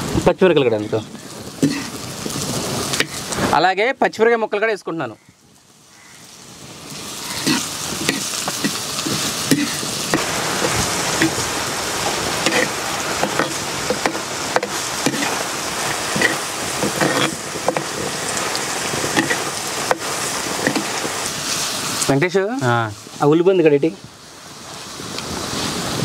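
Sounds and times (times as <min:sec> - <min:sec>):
onions sizzling in hot oil: 0:00.0 - 0:26.0
metal spatula scraping a pot: 0:01.6 - 0:02.0, 0:07.3 - 0:09.9, 0:12.4 - 0:21.3.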